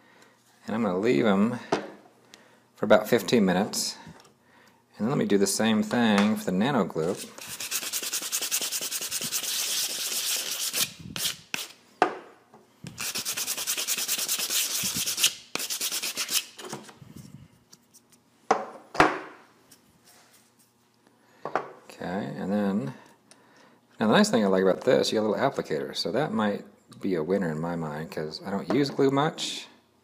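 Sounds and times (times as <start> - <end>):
plastic part rubbed on sandpaper: 7.1 - 11.8, 13.0 - 16.5.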